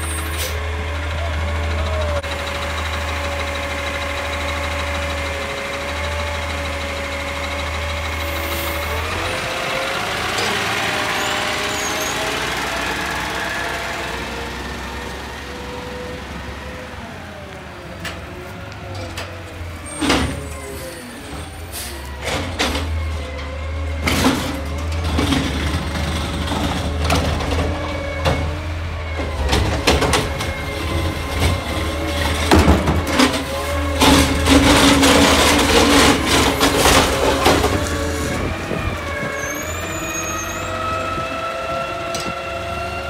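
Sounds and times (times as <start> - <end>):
garbage truck running: 0.0 - 43.0
air brakes hissing: 19.9 - 22.2
clanks and knocks from truck body: 32.3 - 33.4.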